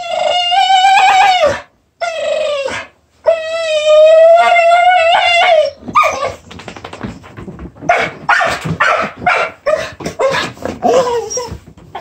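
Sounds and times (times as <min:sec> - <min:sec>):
dog whining: 0:00.0 - 0:06.6, 0:09.6 - 0:12.0.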